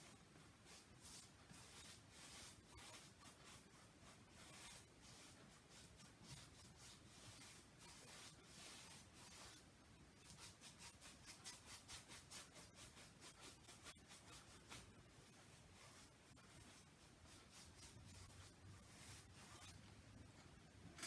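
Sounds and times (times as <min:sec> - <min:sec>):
paintbrush swishing on canvas: 0:00.0 - 0:19.8.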